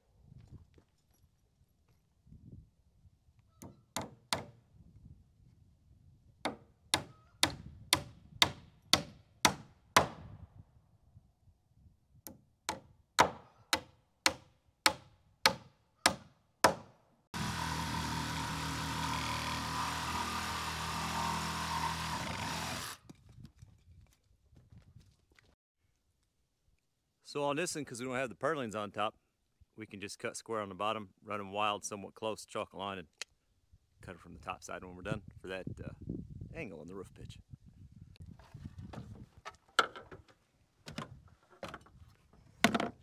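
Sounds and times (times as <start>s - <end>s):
power tool running: 17.4s - 23.0s.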